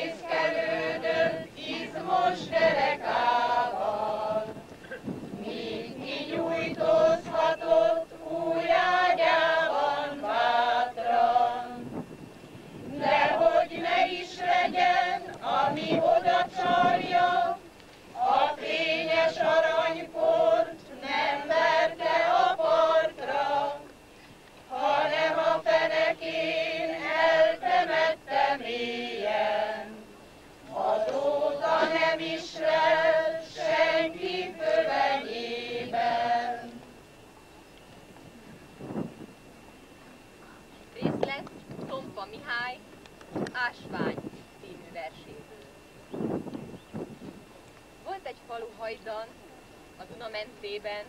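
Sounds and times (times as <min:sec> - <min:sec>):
choir singing unaccompanied: 0:00.0 - 0:24.0, 0:24.6 - 0:37.2.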